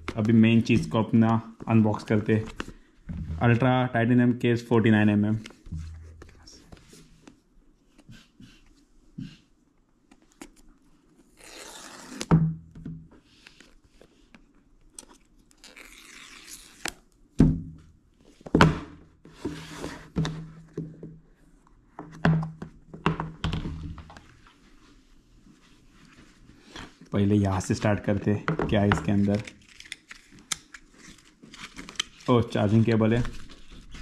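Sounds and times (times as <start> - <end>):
paper strips ripping: 11.3 - 12.3, 15.6 - 17.0.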